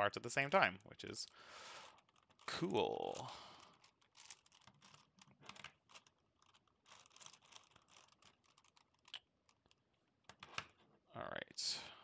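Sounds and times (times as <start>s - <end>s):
puzzle cube clicking: 1.9s - 10.7s.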